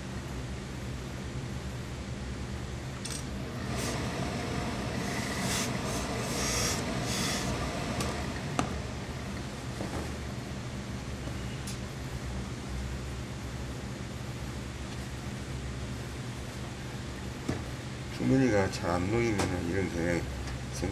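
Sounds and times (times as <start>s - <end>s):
steady low hum: 0.0s - 20.9s
steam iron hissing: 3.6s - 8.2s.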